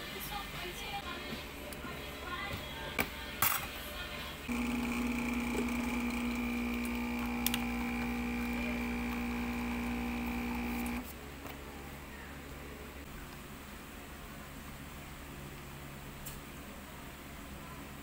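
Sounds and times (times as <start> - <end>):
espresso machine pump buzzing: 4.5 - 11.0.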